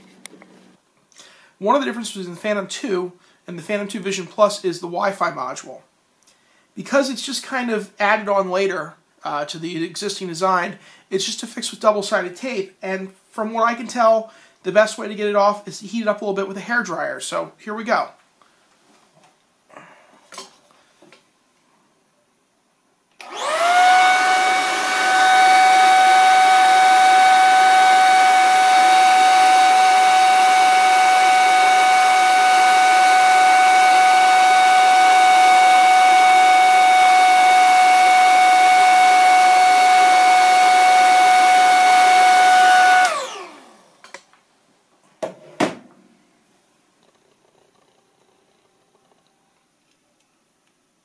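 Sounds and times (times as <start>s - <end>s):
hair dryer running: 23.2s - 44.0s.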